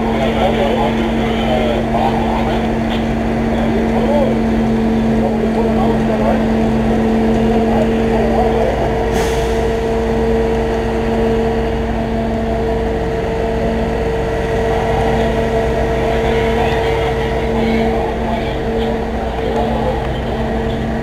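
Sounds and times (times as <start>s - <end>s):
fire truck diesel engine running: 0.0s - 21.0s
short hiss of air: 9.1s - 9.7s.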